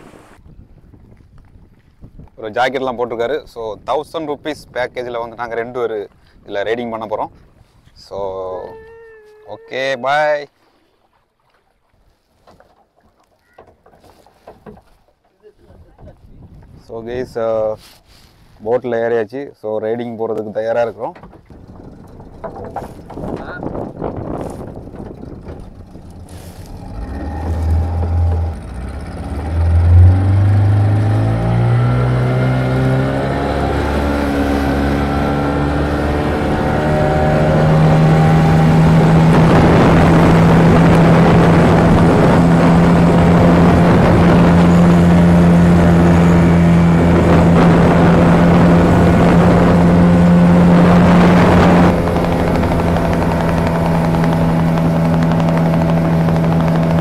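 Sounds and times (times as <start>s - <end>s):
speedboat engine revving: 0.0s - 0.4s, 21.2s - 57.0s
water and wind rushing: 0.0s - 19.2s, 20.0s - 57.0s.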